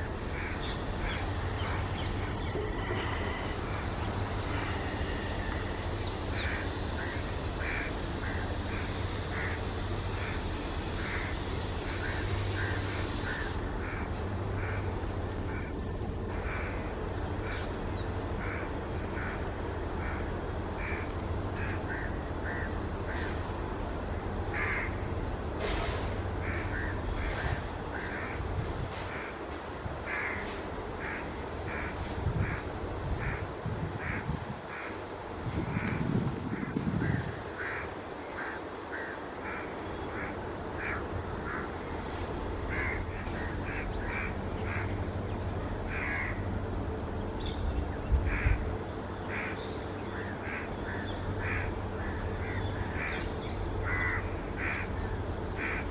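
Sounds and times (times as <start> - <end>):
high hiss: 0.0 - 14.0
low train rumble: 0.0 - 55.9
crows cawing: 0.3 - 1.2, 6.4 - 9.6, 15.5 - 17.7, 18.4 - 23.3, 24.5 - 25.0, 26.4 - 28.5, 30.0 - 35.0, 35.7 - 41.8, 42.7 - 45.0, 45.9 - 46.5, 48.2 - 48.6, 49.2 - 55.0, 55.6 - 55.9.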